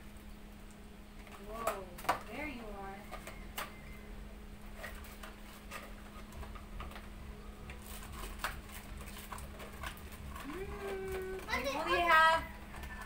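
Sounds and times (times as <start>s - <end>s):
low steady hum: 0.0s - 13.0s
packaging being handled: 4.7s - 11.8s.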